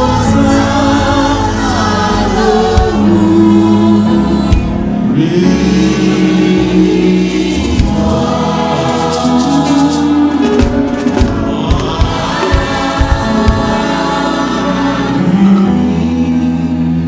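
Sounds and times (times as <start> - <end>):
church choir singing a hymn: 0.0 - 17.0
instrumental accompaniment: 0.0 - 17.0
deep thumps: 10.5 - 14.0.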